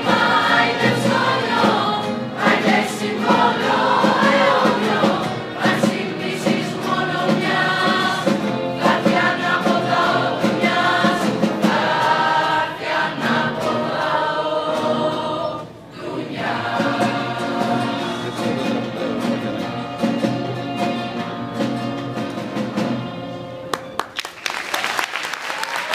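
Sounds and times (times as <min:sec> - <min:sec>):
choir singing in unison: 0:00.0 - 0:20.4
strummed acoustic guitars: 0:00.0 - 0:24.0
applause: 0:23.7 - 0:25.9.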